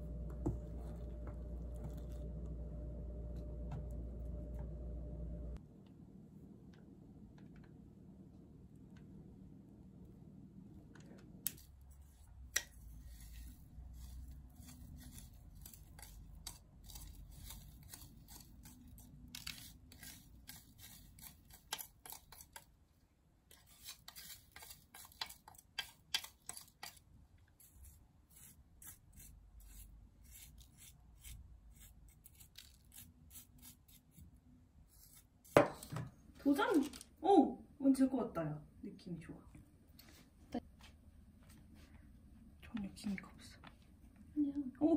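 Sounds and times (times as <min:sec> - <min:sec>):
spatula scraping cream: 0:12.0 - 0:22.8, 0:23.5 - 0:35.9.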